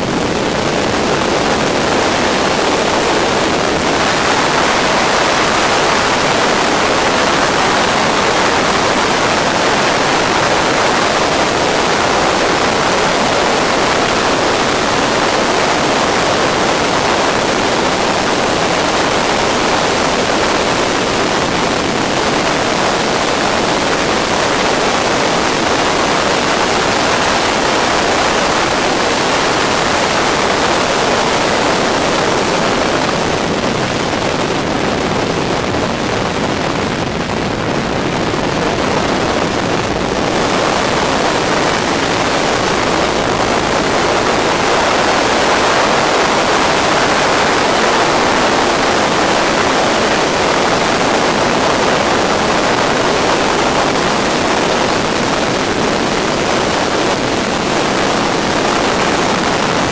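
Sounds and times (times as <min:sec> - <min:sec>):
aircraft engine noise: 0:00.0 - 0:59.9
wind rush: 0:00.0 - 0:59.9.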